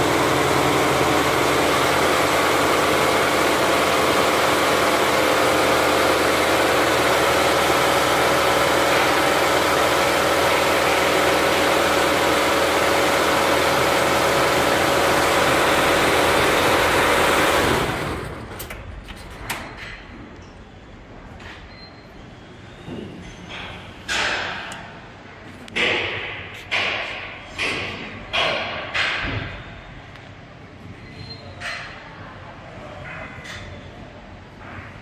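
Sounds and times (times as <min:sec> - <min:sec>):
embroidery machine running: 0:00.0 - 0:18.8.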